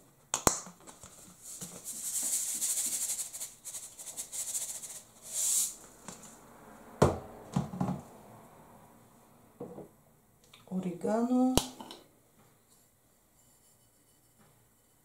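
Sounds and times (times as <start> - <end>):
salt rattling from shaker: 1.7 - 5.7.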